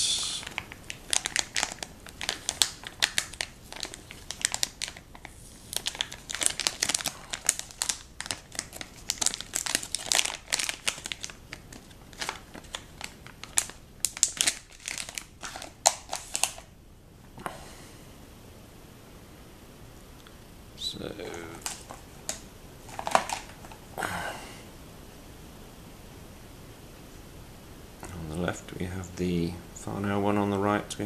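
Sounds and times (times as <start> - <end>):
plastic bag crinkling: 0.4 - 16.7, 21.2 - 23.9.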